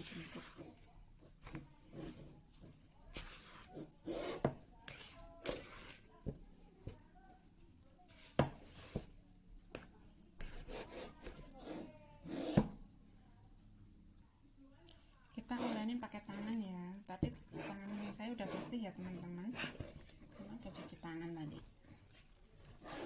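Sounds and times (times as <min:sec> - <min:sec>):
spatula scraping dough in bowl: 0:00.0 - 0:06.2, 0:10.4 - 0:12.8, 0:15.4 - 0:23.0.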